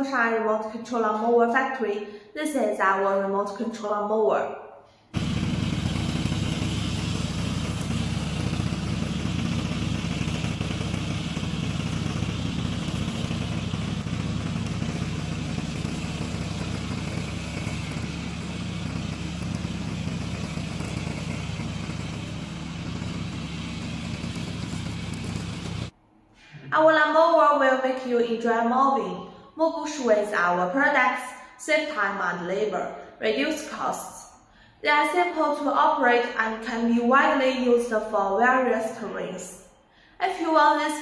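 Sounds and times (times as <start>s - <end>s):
lawn mower engine droning: 5.2s - 25.9s.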